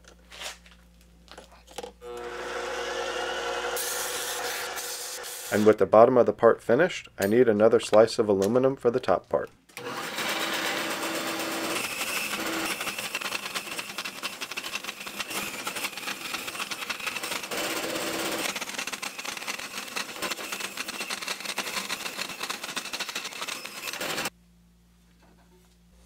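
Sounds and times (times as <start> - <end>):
bandsaw cutting metal bar: 2.0 - 5.8, 9.8 - 24.3.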